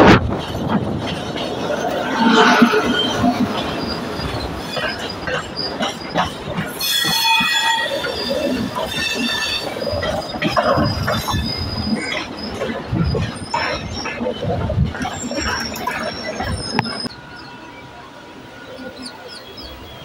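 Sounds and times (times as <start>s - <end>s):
train wheels clattering over joints: 0.0s - 17.2s
high-pitched wheel squeal: 2.0s - 5.7s, 6.8s - 14.1s.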